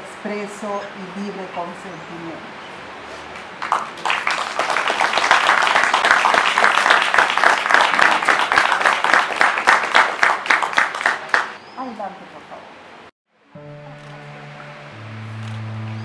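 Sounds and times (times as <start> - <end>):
small crowd applauding: 3.3 - 11.6.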